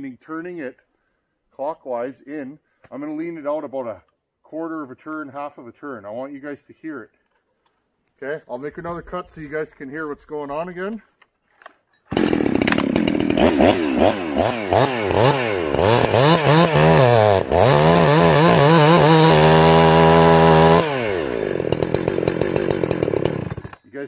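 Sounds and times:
chainsaw revving and cutting log: 12.1 - 23.8.

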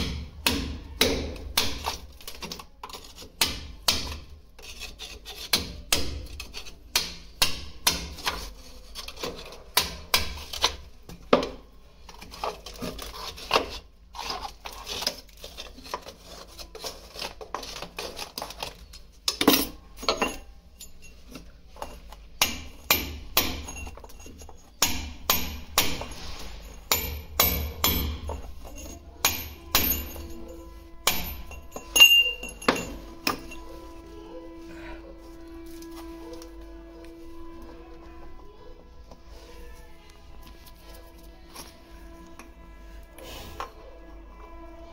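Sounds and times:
hand tools knocking: 26.8 - 33.7.

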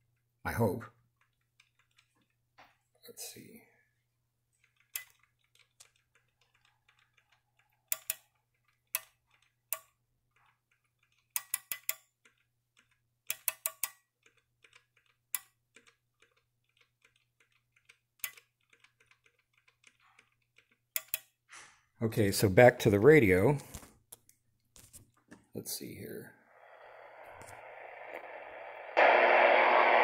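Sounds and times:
small relays clicking: 4.6 - 21.4
faint steady hum: 26.3 - 30.0.

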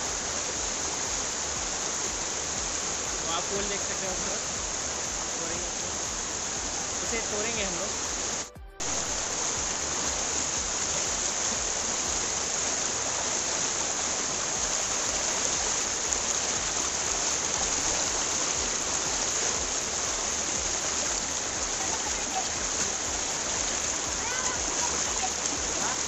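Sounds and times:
river rushing over boulders: 0.0 - 26.0.

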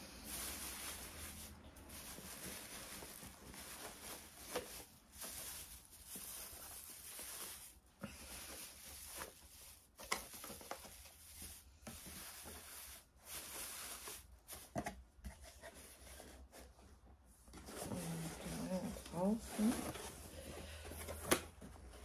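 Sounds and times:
hands rustling cardboard packaging: 0.0 - 16.8.

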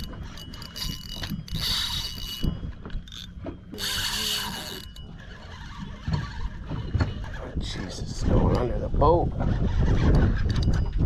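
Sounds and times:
fishing reel buzzing: 0.0 - 7.4.

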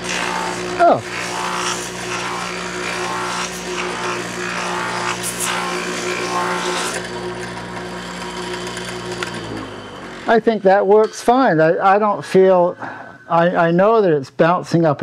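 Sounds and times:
wood rasping on sanding drum: 0.0 - 7.0
electric motor hum: 0.0 - 11.0.

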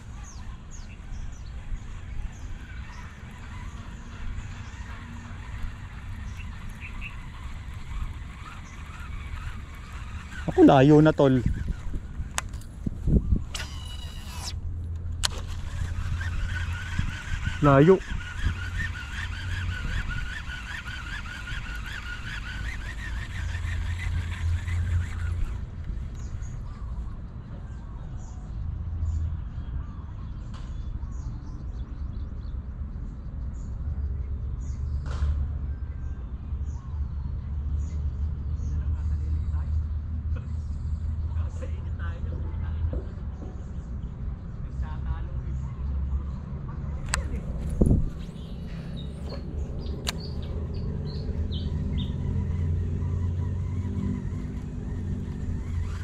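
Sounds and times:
bird chirping: 0.0 - 14.6, 46.9 - 56.0
birds chirping: 0.0 - 56.0
sharp click: 49.2 - 50.5.

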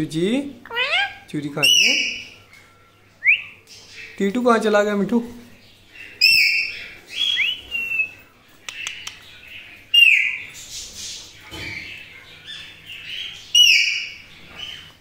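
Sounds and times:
parakeets screeching: 0.6 - 2.5, 5.9 - 8.2, 8.8 - 15.0.

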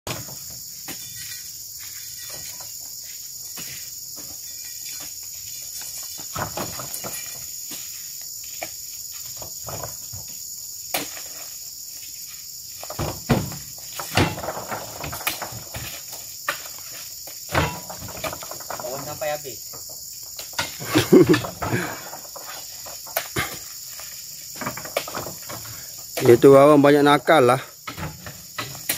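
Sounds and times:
insects droning: 0.1 - 28.9
fruit bunches thudding into truck bed: 6.2 - 7.4, 9.3 - 11.3, 12.8 - 16.9, 17.5 - 23.8, 24.5 - 26.7, 27.5 - 28.9.

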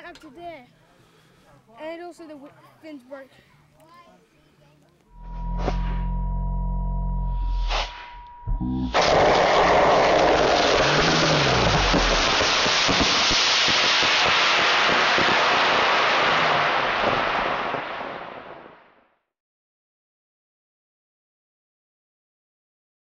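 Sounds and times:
rocket motor hissing: 8.9 - 15.5.

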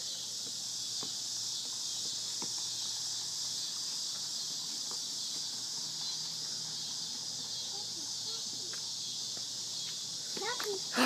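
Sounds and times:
insect chorus droning: 0.0 - 11.0.

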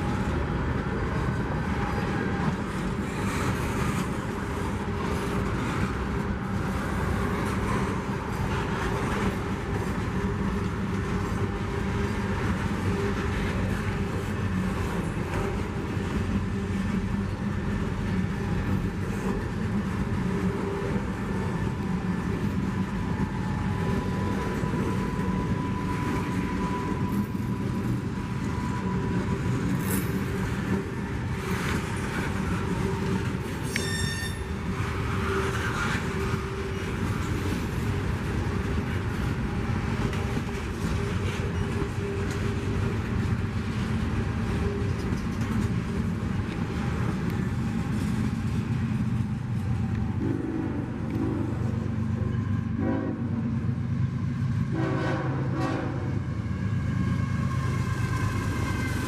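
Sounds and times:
train wheels rumbling on rail: 0.0 - 59.0
wheel squeal: 33.6 - 36.1.

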